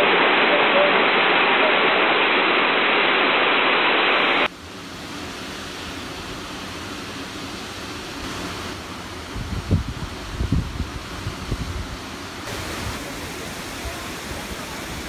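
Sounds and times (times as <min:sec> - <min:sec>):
waterfall rushing: 0:12.0 - 0:15.0.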